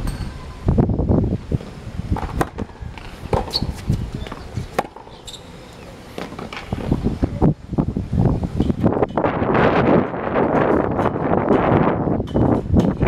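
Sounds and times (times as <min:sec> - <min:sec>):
wind rumble on microphone: 0:00.0 - 0:04.8, 0:06.4 - 0:13.0
tennis balls bouncing on hard court: 0:01.6 - 0:07.0
tennis balls struck by racquets: 0:01.6 - 0:07.0.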